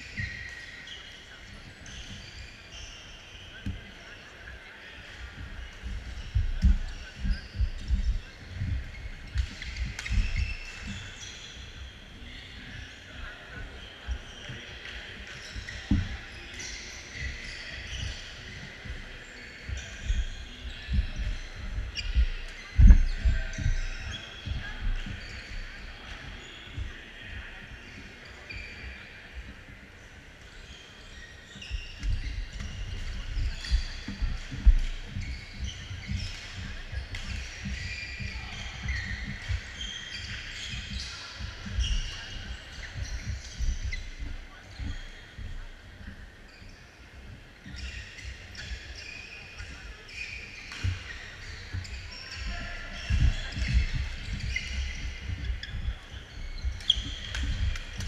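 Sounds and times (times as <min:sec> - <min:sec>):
murmur of voices: 0:00.0 - 0:58.0
shoes thumping and squeaking: 0:05.2 - 0:29.8, 0:30.5 - 0:58.0
footwork thuds: 0:05.4 - 0:11.0, 0:18.6 - 0:25.8, 0:50.8 - 0:58.0.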